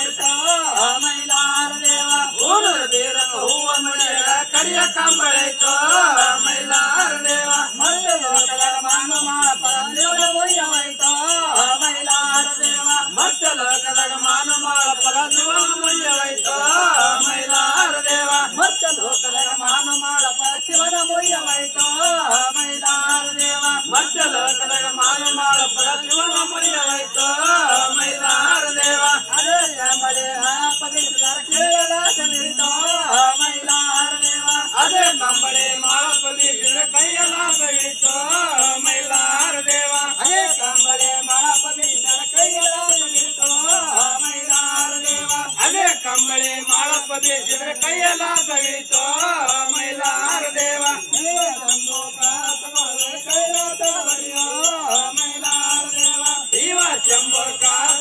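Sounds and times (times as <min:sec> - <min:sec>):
small bells jingling: 0:00.0 - 0:58.0.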